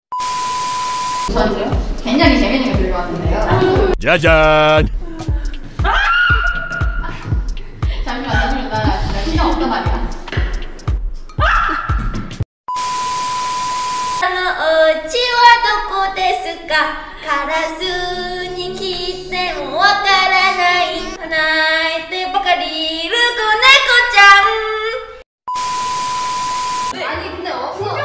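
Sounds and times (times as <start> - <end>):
girl singing into microphone: 14.2 - 25.0
short steady beep: 25.5 - 27.0.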